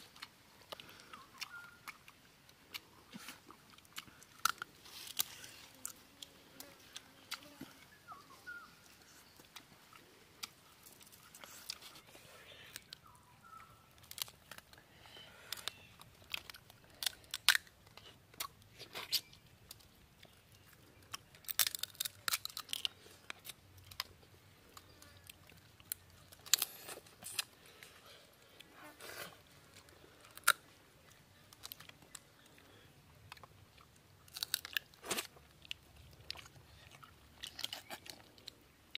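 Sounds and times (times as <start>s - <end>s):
crunching and chewing: 0.0s - 39.0s
crab shell cracking: 14.0s - 14.8s, 15.5s - 19.9s, 21.0s - 24.1s, 29.8s - 32.2s, 34.2s - 35.4s.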